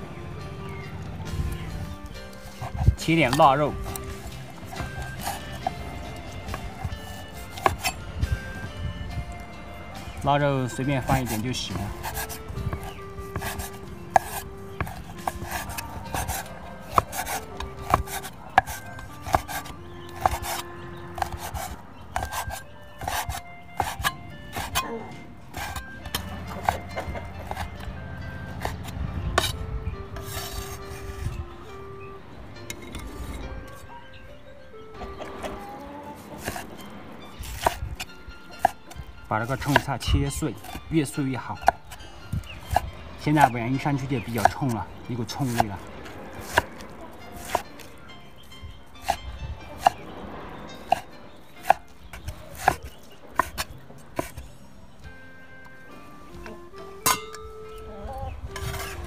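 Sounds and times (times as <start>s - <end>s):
background music with held notes: 0.0s - 59.0s
blade rubbing over board: 1.4s - 8.7s, 10.8s - 24.9s, 25.5s - 27.8s, 28.4s - 31.4s, 36.2s - 36.8s, 42.5s - 48.0s, 58.5s - 59.0s
cleaver chopping on wooden board: 2.4s - 8.7s, 11.0s - 27.8s, 28.5s - 29.6s, 36.2s - 36.8s, 37.4s - 40.8s, 42.6s - 43.0s, 43.9s - 48.0s, 49.0s - 49.2s, 49.8s - 50.1s, 50.8s - 54.5s.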